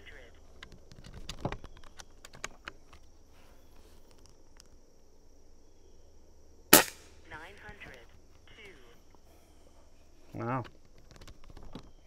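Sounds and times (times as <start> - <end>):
air rifle shot: 6.7 - 7.1.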